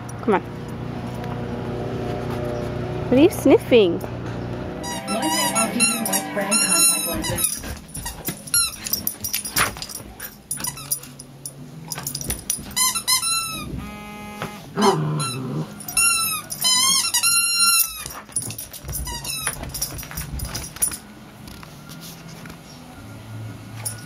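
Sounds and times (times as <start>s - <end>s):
squeaky dog toy squeaking: 4.8s - 8.8s, 12.7s - 18.1s.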